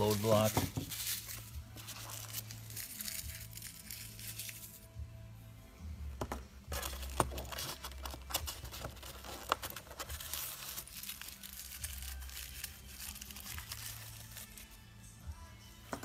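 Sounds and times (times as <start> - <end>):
packaging crinkling and rustling: 0.0 - 4.7, 6.7 - 14.6.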